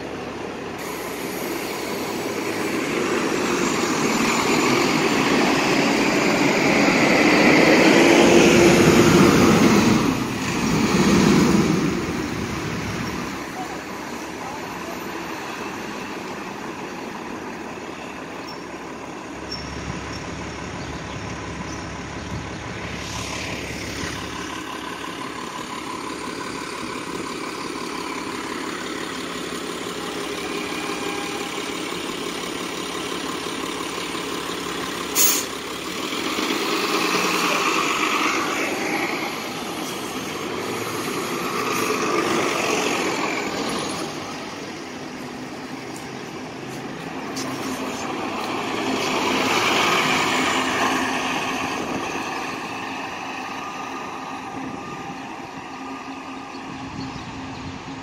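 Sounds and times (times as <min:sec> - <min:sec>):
bus engine drone: 0:00.0 - 0:58.0
diesel bus pulling away: 0:00.0 - 0:58.0
air brake hiss: 0:00.8 - 0:02.8, 0:35.2 - 0:35.6.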